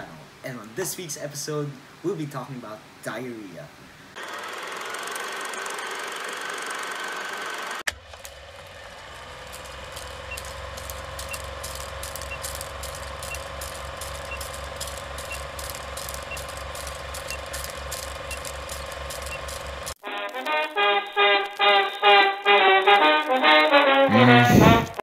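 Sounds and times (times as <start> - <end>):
film projector clatter: 4.2 - 20.0.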